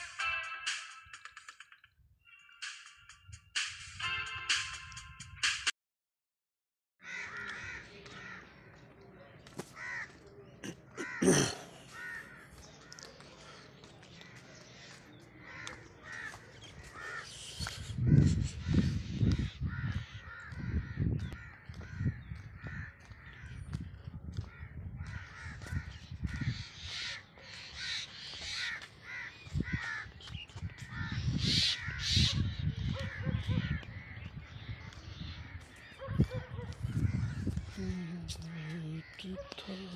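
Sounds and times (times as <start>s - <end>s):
crows cawing: 7.0s - 8.8s, 9.6s - 37.8s, 38.4s - 39.9s
low thumps and rumbles: 36.3s - 37.8s.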